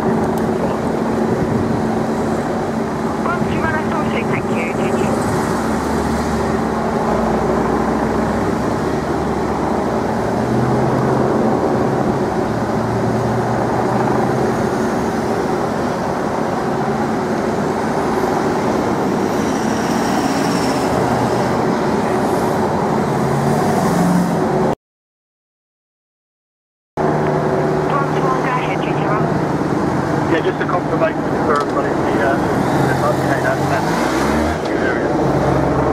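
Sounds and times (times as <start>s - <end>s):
vehicles driving slowly past: 0.0s - 24.7s, 27.0s - 35.9s.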